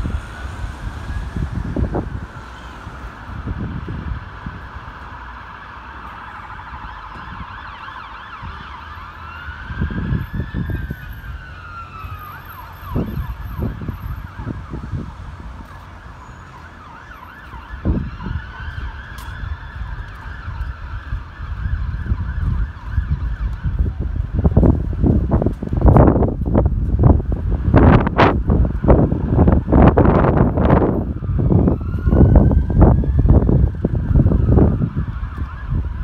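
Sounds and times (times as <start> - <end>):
siren yelping: 0.0 - 2.8, 5.3 - 24.2, 29.0 - 36.0
siren wailing: 0.0 - 24.8, 27.8 - 36.0.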